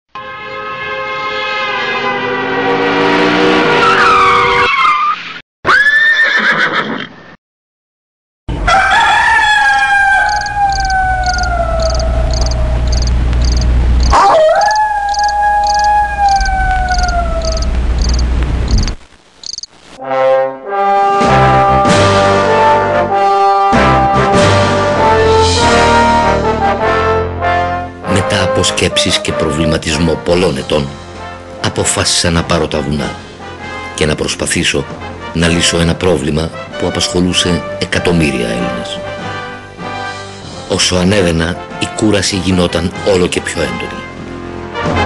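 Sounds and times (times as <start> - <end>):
regular high ticking: 10.2 - 19.8
low rumble: 11.0 - 14.2, 15.0 - 19.0.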